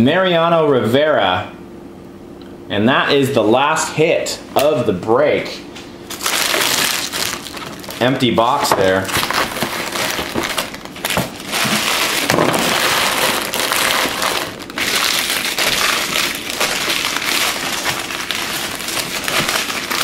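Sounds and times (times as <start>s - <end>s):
foil wrappers crinkling: 6.1s - 20.0s.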